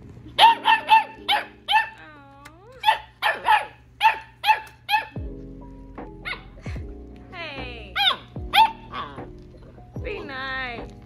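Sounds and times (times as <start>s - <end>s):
puppy yapping: 0.4s - 2.1s, 2.7s - 5.3s, 6.2s - 6.6s, 8.0s - 9.4s.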